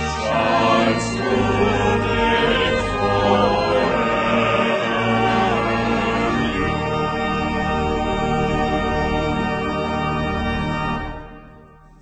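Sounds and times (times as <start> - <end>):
vocal ensemble singing choral piece: 0.0 - 7.2.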